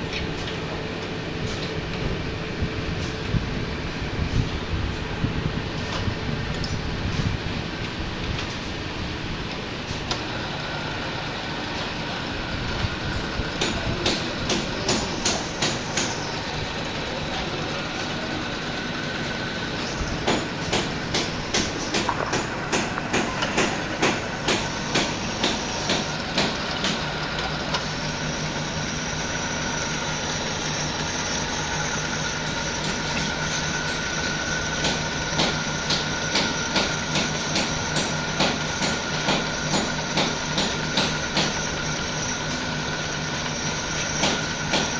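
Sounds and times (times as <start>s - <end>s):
drill press motor hum: 9.5s - 44.9s.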